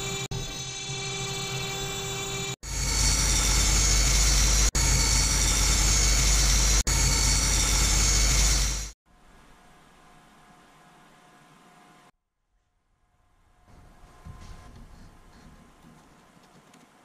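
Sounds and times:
band saw cutting wood: 0:00.0 - 0:09.0
router spindle whine: 0:00.0 - 0:09.0.

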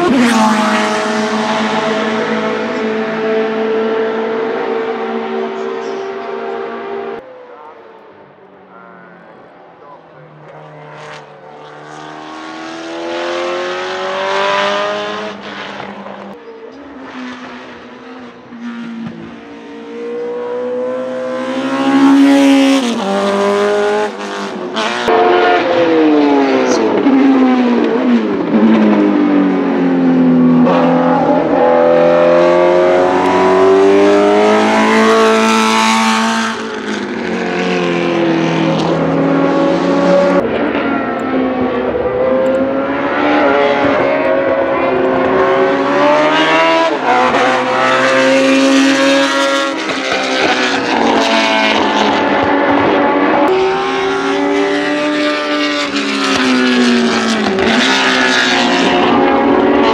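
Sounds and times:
race car engine revving: 0:00.0 - 0:59.9.

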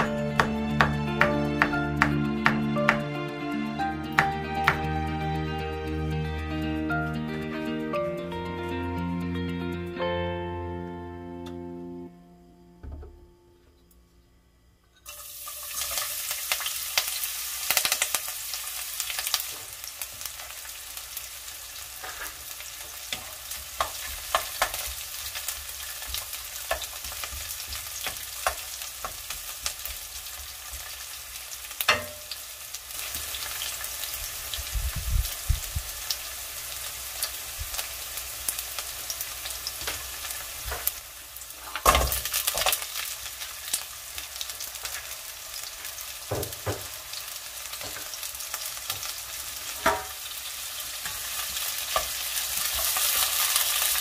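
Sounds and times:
spatula knock: 0:00.0 - 0:03.1, 0:31.9 - 0:32.4
garlic sizzling in hot oil: 0:00.0 - 0:06.2, 0:15.0 - 0:54.0
wooden spatula scraping wok: 0:22.0 - 0:22.5.

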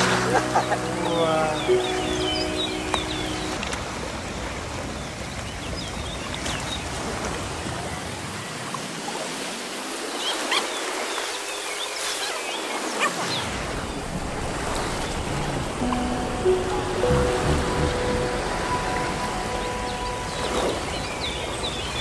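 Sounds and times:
sea water rushing: 0:00.0 - 0:22.0
wind: 0:00.0 - 0:22.0
bird chirps: 0:00.4 - 0:03.7, 0:15.8 - 0:22.0.

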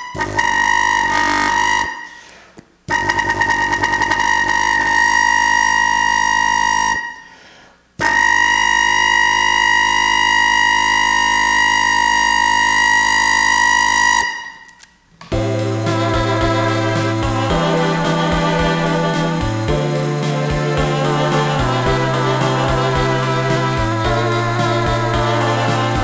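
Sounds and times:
loud brassy horn note: 0:00.0 - 0:02.1, 0:15.3 - 0:26.0.

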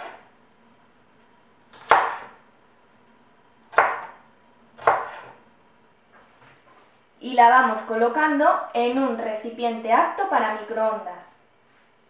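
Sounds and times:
knife cutting onion: 0:00.0 - 0:00.3, 0:01.7 - 0:02.4, 0:03.6 - 0:05.4.

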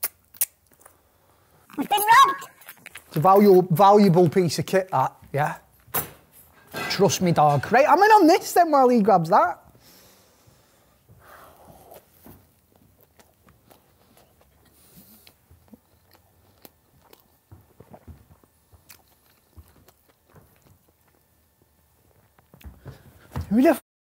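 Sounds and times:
mouth clicks: 0:00.0 - 0:00.7
faint chewing crunches: 0:00.0 - 0:03.7, 0:11.3 - 0:23.3.

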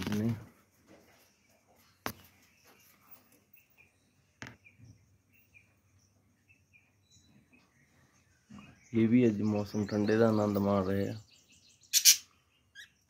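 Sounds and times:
budgerigars chirping: 0:03.7 - 0:13.0.

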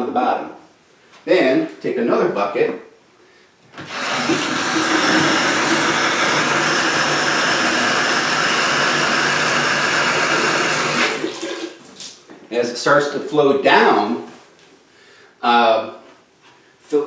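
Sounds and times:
faucet running into plastic bucket: 0:03.8 - 0:11.8.

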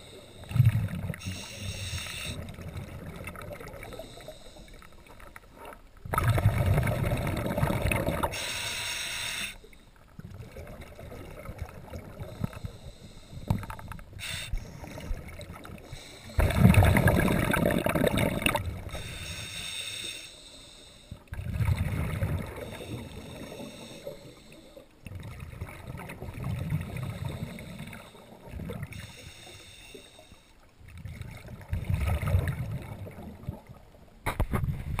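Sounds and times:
diver exhaling bubbles: 0:06.1 - 0:08.4, 0:14.6 - 0:19.1, 0:21.3 - 0:24.0.

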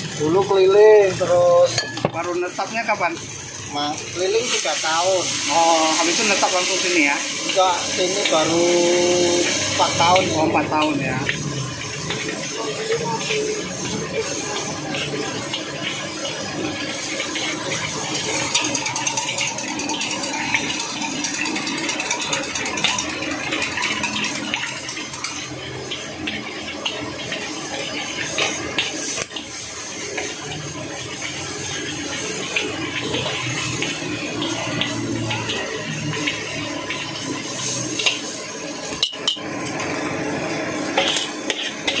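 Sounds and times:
rice sizzling in a wok: 0:00.0 - 0:42.0
metal spatula scraping a wok: 0:09.2 - 0:39.9, 0:40.8 - 0:42.0.

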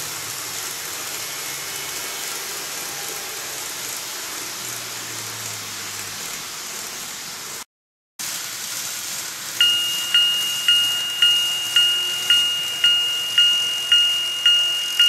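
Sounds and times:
steady hiss: 0:08.2 - 0:15.0
level crossing warning bell: 0:09.6 - 0:15.0.

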